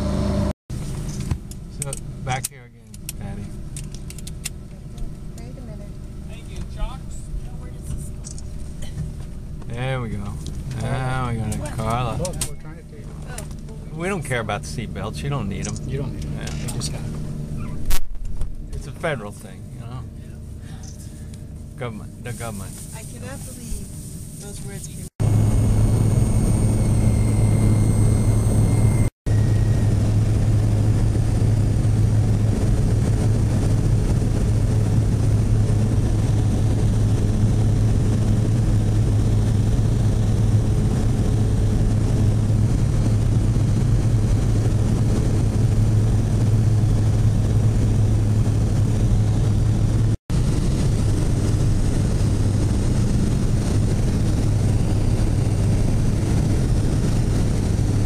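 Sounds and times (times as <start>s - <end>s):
propeller plane engine drone: 0.0s - 58.0s
thin high whine: 18.7s - 32.1s.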